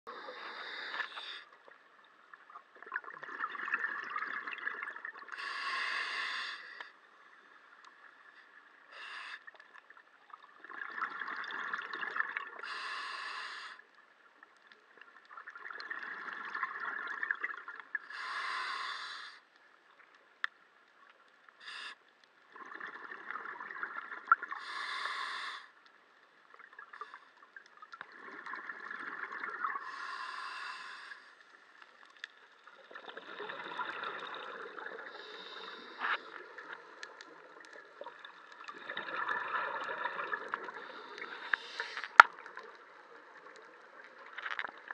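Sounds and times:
scuba regulator breathing underwater: 0.1 - 1.6, 5.3 - 6.9, 8.9 - 9.6, 12.6 - 13.8, 18.0 - 19.4, 24.6 - 25.8, 29.7 - 31.5, 33.2 - 37.0, 38.7 - 42.3.

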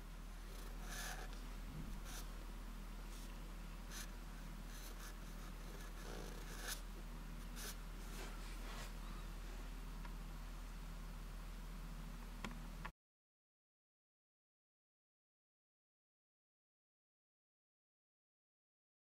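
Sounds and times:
low steady hum: 0.0 - 12.9
marker writing on paper: 0.7 - 1.3, 2.0 - 2.3, 4.7 - 6.8, 7.6 - 7.8.

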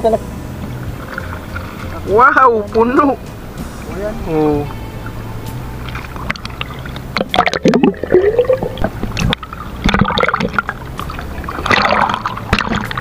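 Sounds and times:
water splashing against boat: 0.0 - 13.0.

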